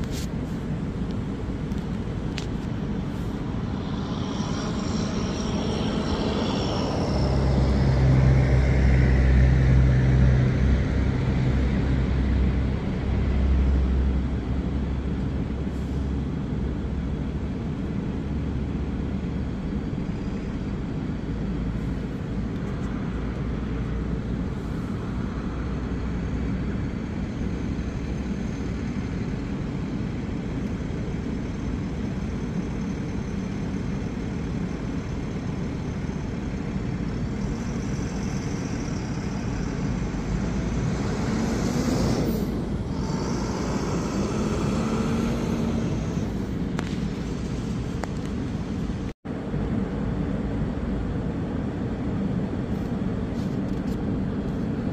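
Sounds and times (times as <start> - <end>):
steady low rumble: 0.0 - 54.9
vehicle passing: 2.9 - 12.7, 39.9 - 46.6.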